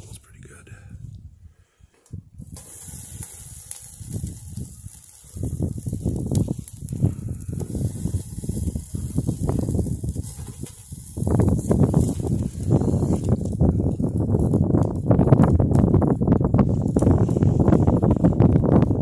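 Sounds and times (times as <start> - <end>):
wind gusts on microphone: 0.0 - 19.0
camp stove fire hissing: 2.4 - 19.0.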